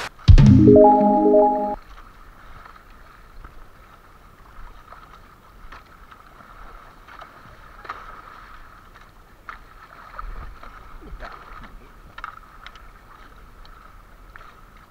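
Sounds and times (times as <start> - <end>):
short musical chord: 0.3 - 1.8
wind: 2.6 - 14.9.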